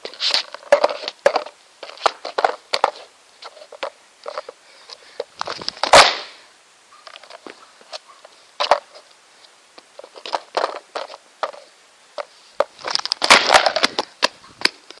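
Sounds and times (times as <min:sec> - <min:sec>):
wooden skateboard deck cracking: 0:00.3 - 0:04.6, 0:05.4 - 0:06.3, 0:12.6 - 0:14.9.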